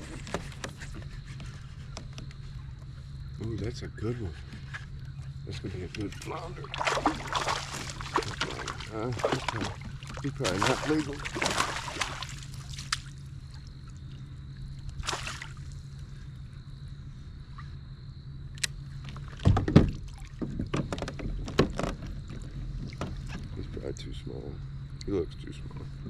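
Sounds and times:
rod and net knocking on hull: 0:06.6 - 0:13.1, 0:19.4 - 0:23.4.

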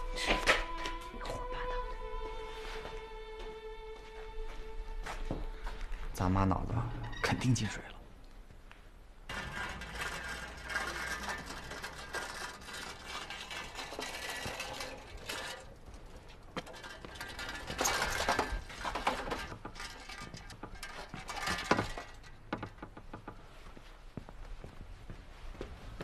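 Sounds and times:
bicycle being handled: 0:00.0 - 0:01.2, 0:08.4 - 0:25.4
bicycle rattling over cobblestones: 0:08.9 - 0:24.1.

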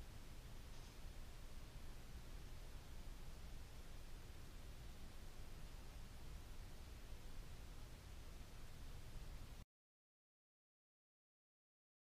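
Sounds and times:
static hiss: 0:00.0 - 0:09.6.

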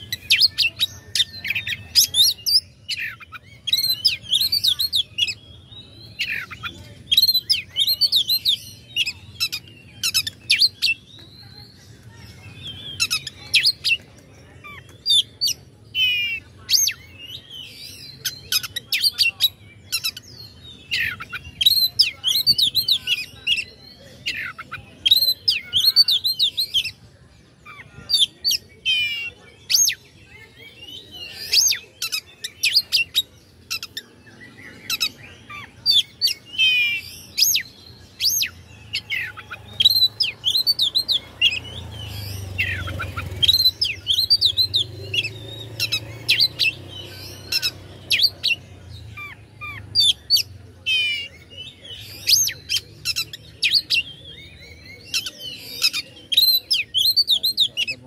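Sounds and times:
bird singing whistles and trills: 0:28.0 - 0:58.0.

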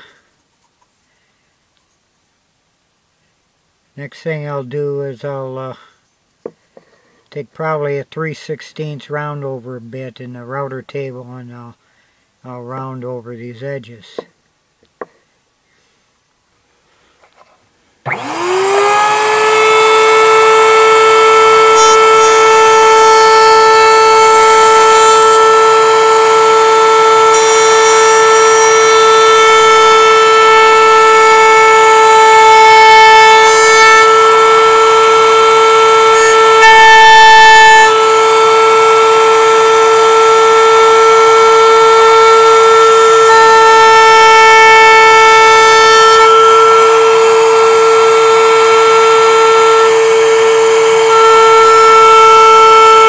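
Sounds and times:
router whining: 0:18.0 - 0:53.0.

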